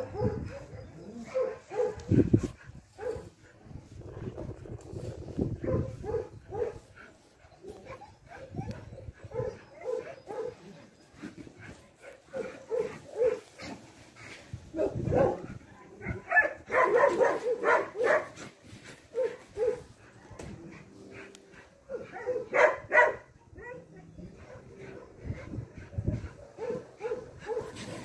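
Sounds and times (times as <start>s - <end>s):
dog barking: 0.0s - 2.1s, 3.0s - 3.3s, 5.6s - 6.8s, 9.3s - 10.6s, 12.4s - 13.4s, 14.8s - 18.4s, 19.1s - 19.9s, 21.9s - 23.8s, 26.3s - 27.8s.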